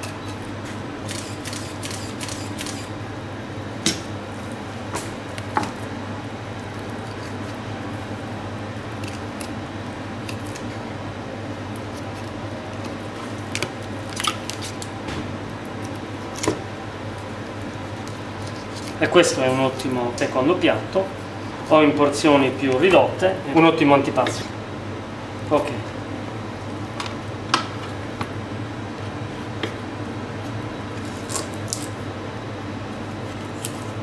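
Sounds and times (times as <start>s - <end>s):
low room hum: 0.0s - 34.0s
knife cutting and scraping meat: 6.7s - 7.6s, 17.6s - 19.1s, 33.0s - 34.0s.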